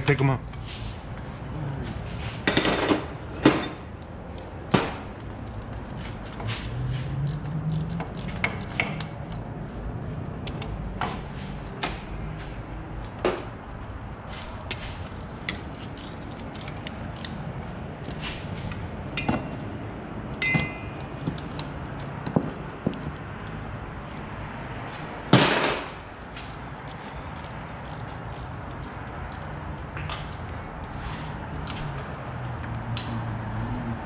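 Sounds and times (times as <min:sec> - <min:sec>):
hand tools and metal parts clinking: 0:02.2 - 0:04.5, 0:05.1 - 0:09.5, 0:10.4 - 0:33.8
ringing metal clinks: 0:20.4 - 0:21.0.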